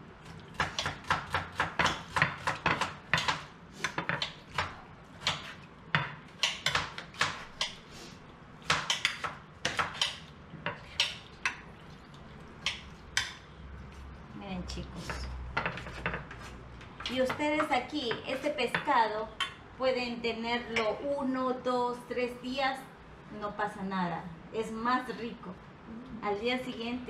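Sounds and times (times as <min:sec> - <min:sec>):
knives tapping on cutting boards: 0:00.6 - 0:07.8, 0:08.6 - 0:11.2.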